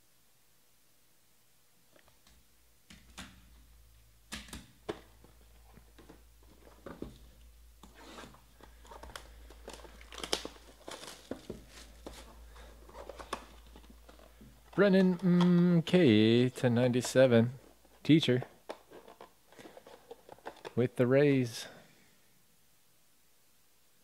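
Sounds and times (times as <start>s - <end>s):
cards and box clicking: 7.8s - 17.3s, 17.9s - 20.8s
plastic wrap tearing and crinkling: 7.9s - 17.2s.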